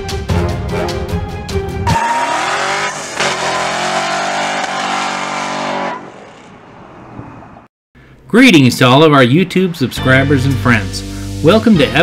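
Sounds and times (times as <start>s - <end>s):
car engine revving: 1.9s - 7.6s.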